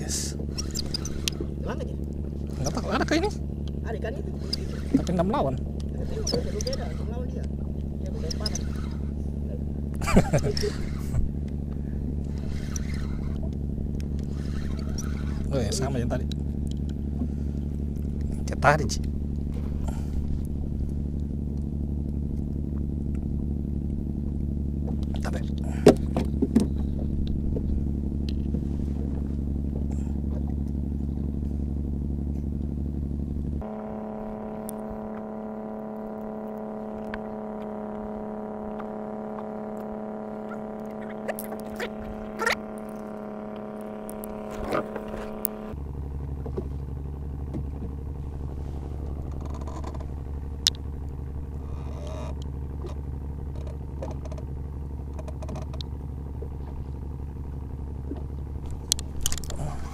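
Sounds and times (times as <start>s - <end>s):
boat engine running: 0.0s - 59.9s
clicks and squeaks: 0.4s - 1.8s, 4.3s - 9.2s, 12.3s - 17.0s, 38.8s - 45.8s, 49.2s - 50.8s, 55.1s - 56.0s, 58.1s - 59.9s.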